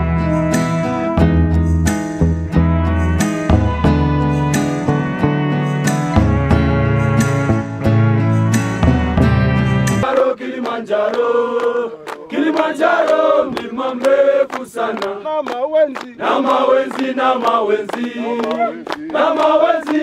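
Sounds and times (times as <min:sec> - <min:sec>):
hands clapping in time: 0:10.0 - 0:20.0
men singing together: 0:10.0 - 0:20.0.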